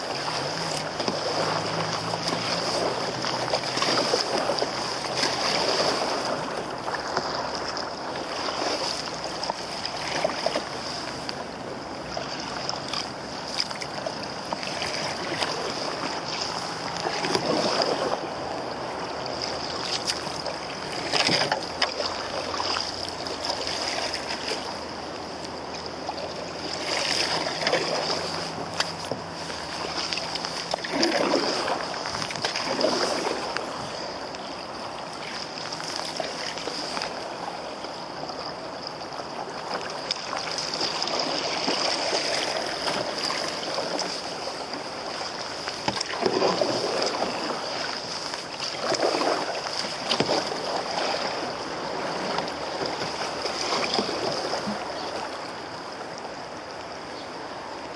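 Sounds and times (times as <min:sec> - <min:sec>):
river water lapping against canoe: 0:00.0 - 0:57.9
water splashing: 0:00.0 - 0:57.9.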